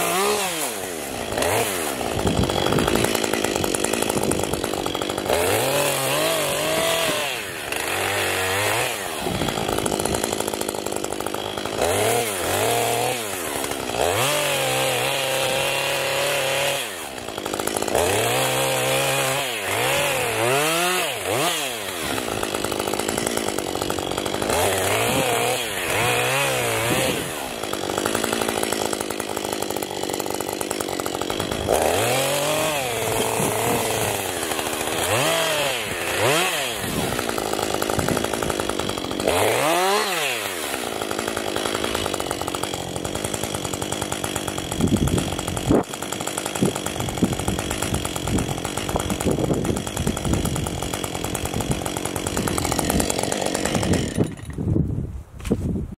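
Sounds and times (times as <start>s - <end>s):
chainsaw revving: 0.0s - 54.7s.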